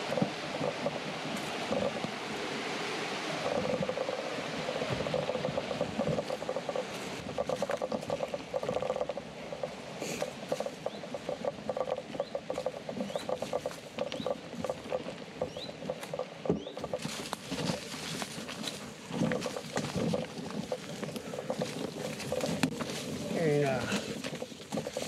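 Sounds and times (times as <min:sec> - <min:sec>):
leaves and undergrowth rustling: 0:00.0 - 0:25.0
footsteps on leafy dirt path: 0:03.8 - 0:09.2, 0:12.0 - 0:25.0.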